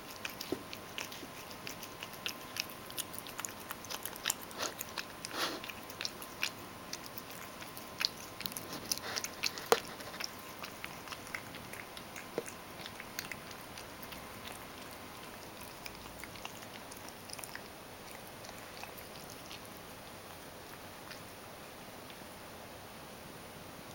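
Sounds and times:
cat chewing and smacking: 0.0s - 22.3s.

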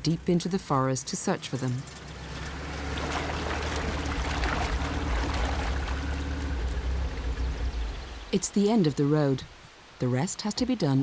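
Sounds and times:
truck engine rumbling: 0.0s - 8.6s
wheels splashing through mud water: 1.2s - 8.3s.

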